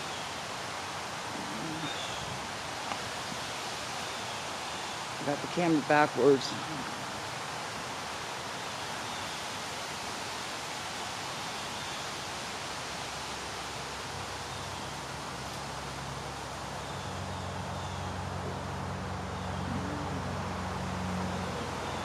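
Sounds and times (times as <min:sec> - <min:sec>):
outdoor background hiss: 0:00.0 - 0:22.0
faint low hum: 0:16.4 - 0:22.0.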